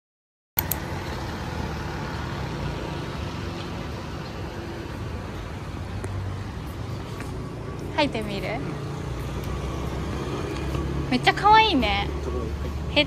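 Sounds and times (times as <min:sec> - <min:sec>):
sharp click: 0:00.6 - 0:00.8
road traffic hum: 0:00.6 - 0:13.0.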